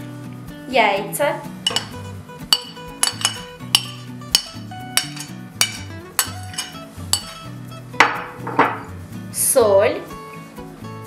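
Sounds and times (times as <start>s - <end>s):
background music with steady beat: 0.0s - 11.0s
metal spoon scraping glass bowl: 1.6s - 7.4s.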